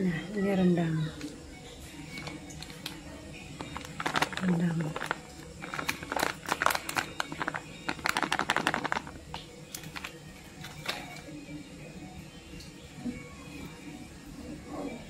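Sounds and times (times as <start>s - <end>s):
plastic packet crinkling: 3.6s - 11.2s.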